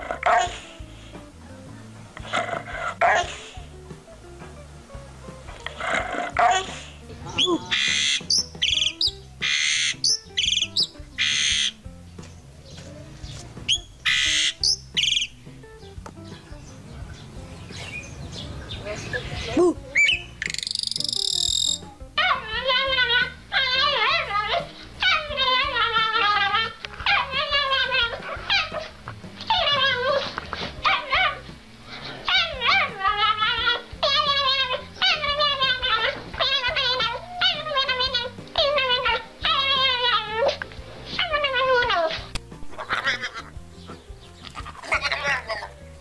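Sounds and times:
starling rattled notes: 0:00.0 - 0:40.0
faint background music: 0:00.0 - 0:46.0
starling screeching: 0:05.7 - 0:11.8, 0:13.7 - 0:15.4, 0:18.9 - 0:21.9
small dog whining and yowling: 0:21.0 - 0:31.5, 0:33.7 - 0:40.6.

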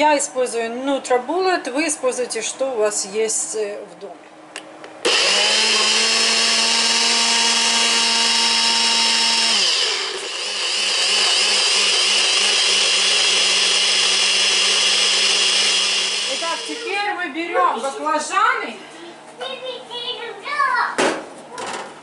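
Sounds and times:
blender motor whining: 0:05.0 - 0:17.1.

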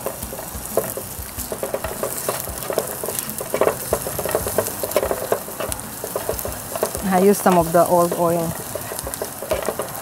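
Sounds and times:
garlic sizzling in hot oil: 0:00.0 - 0:10.0
spatula scraping and tapping pan: 0:00.0 - 0:10.0.

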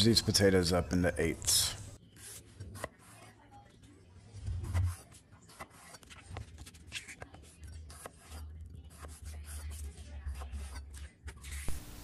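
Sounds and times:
knife cutting potatoes on board: 0:02.2 - 0:03.3, 0:04.4 - 0:11.8.

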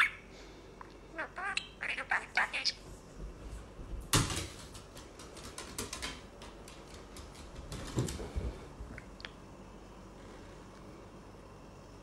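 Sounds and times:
scattered clicks and knocks: 0:04.1 - 0:08.2.

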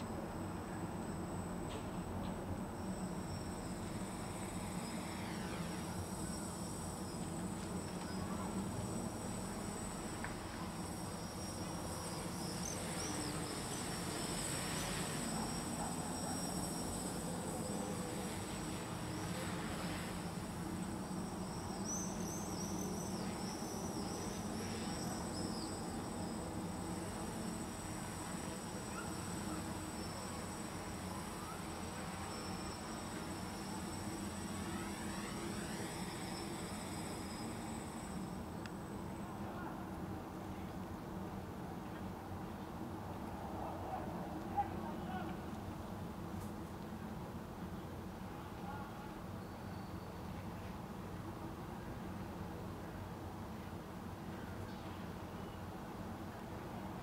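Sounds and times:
high insect-like whine: 0:00.0 - 0:43.6
quadcopter motors buzzing: 0:02.5 - 0:39.2
drone propellers buzzing: 0:26.6 - 0:38.6.

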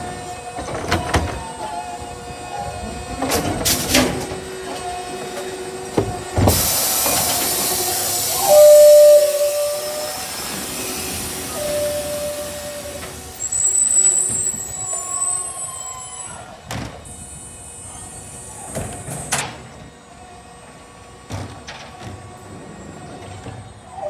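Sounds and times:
hiss: 0:06.4 - 0:13.5.

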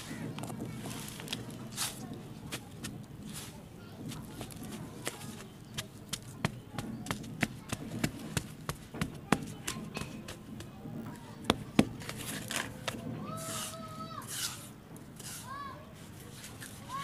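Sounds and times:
hand patting damp soil: 0:00.0 - 0:14.6.

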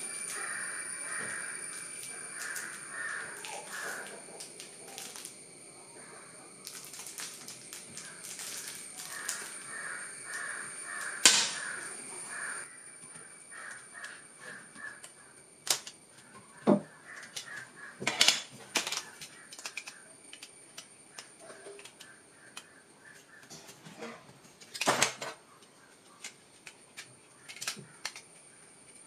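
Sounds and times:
repeated animal calls: 0:00.0 - 0:06.9, 0:07.6 - 0:18.1
plastic parts clicking and knocking: 0:14.8 - 0:22.7, 0:26.2 - 0:28.4.

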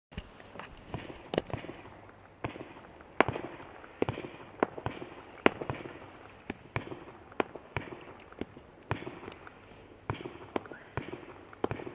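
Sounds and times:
firework barrage popping: 0:00.9 - 0:11.9.

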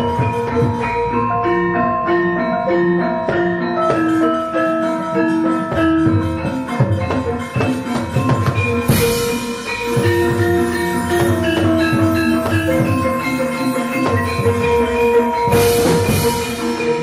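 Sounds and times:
ringing metallophone melody: 0:00.0 - 0:17.0.

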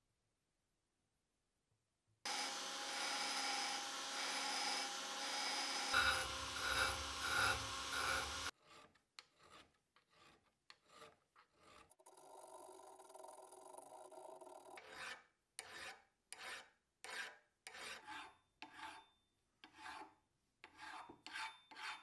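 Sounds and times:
electric rotary tool grinding steel: 0:02.3 - 0:08.5
hand file scraping steel: 0:02.3 - 0:12.2, 0:13.9 - 0:22.0.

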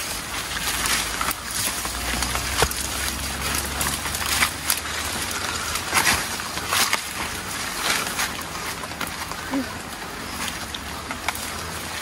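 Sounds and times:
footsteps through rustling brush: 0:00.0 - 0:12.0.

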